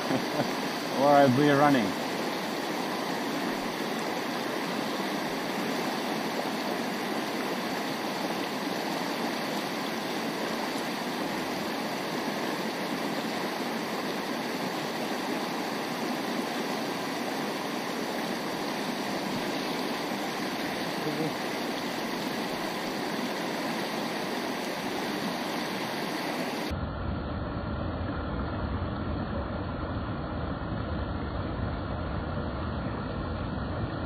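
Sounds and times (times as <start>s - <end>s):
stream rushing over rocks: 0.0s - 26.7s.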